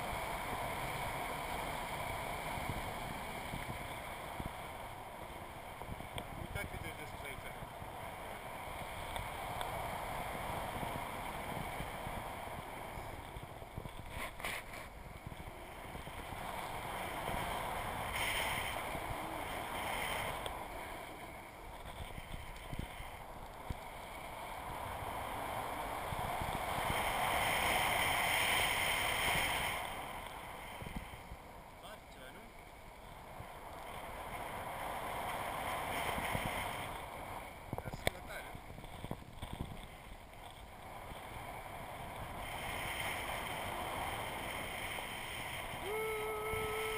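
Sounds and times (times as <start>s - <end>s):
wind buffeting camera housing: 2.5s - 27.3s, 35.8s - 45.8s.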